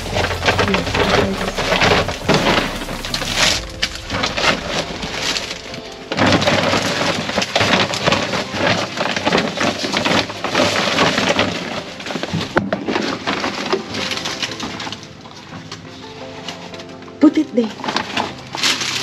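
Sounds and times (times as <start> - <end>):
plastic bags crinkling: 0.0 - 19.0.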